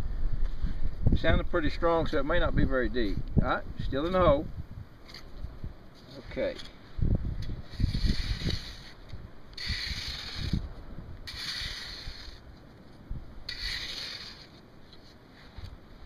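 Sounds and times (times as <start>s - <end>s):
shovel scraping stony sand: 7.4s - 12.7s, 13.4s - 15.8s.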